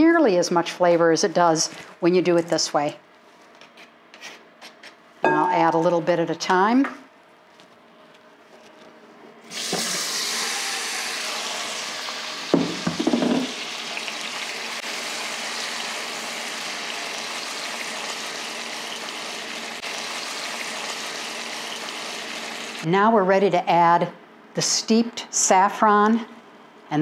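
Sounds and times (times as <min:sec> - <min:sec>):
vegetables sizzling in hot oil: 0:09.6 - 0:22.8.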